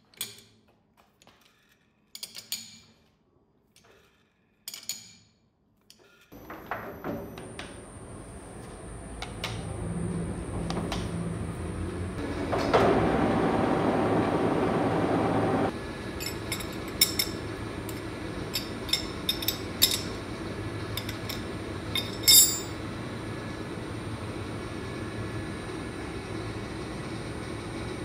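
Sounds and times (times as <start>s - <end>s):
lathe whirring: 7.6s - 16.0s
metal wrench clinking: 22.0s - 22.8s.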